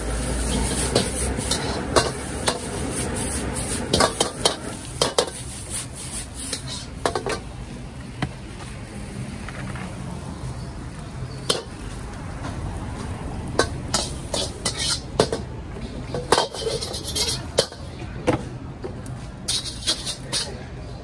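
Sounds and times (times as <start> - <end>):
metal spatula scraping wok: 0.0 - 7.5, 13.5 - 17.9, 19.4 - 20.7.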